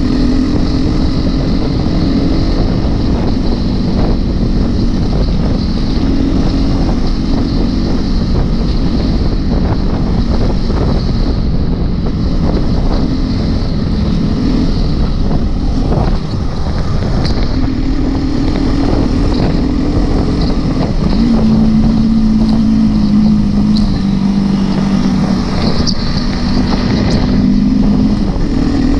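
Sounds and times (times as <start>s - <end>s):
motorbike engine running: 0.0s - 28.9s
wind buffeting microphone: 0.0s - 28.9s.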